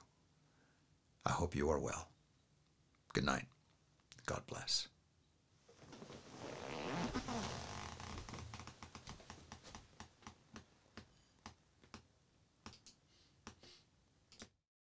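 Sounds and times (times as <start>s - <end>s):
clothing rustling: 5.6s - 10.7s
leather chair creaking: 5.7s - 10.4s
soft irregular clicks: 8.6s - 13.6s, 14.3s - 14.6s.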